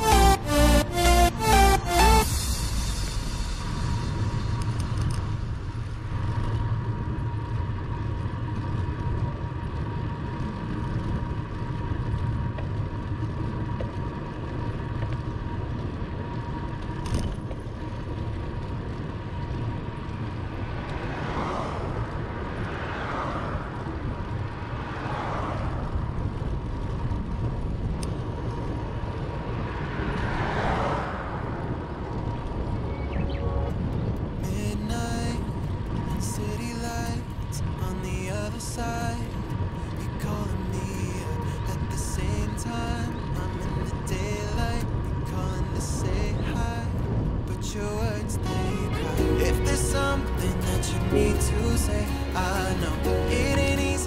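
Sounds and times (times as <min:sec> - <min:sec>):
road noise: 0:00.0 - 0:54.0
motor vehicles passing: 0:02.9 - 0:34.5, 0:48.1 - 0:54.0
wind rumbling on microphone: 0:03.2 - 0:52.8.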